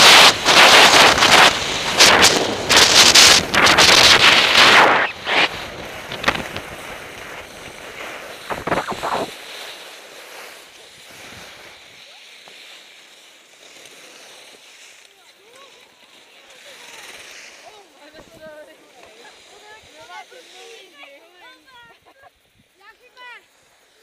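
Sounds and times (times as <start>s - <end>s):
wind on camera microphone: 0.0s - 9.4s
skis scraping on snow: 0.0s - 24.0s.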